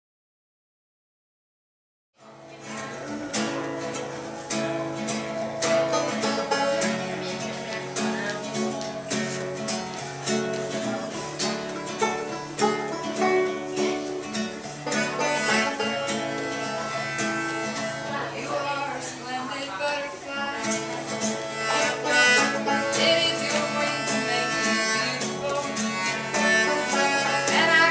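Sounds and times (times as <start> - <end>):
acoustic guitar: 2.2 - 27.9
banjo: 2.2 - 27.9
melodica held notes: 14.8 - 18.2, 20.6 - 27.9.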